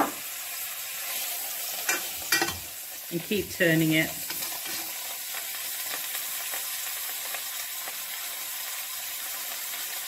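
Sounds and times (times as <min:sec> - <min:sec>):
meat sizzling in oil: 0:00.0 - 0:10.0.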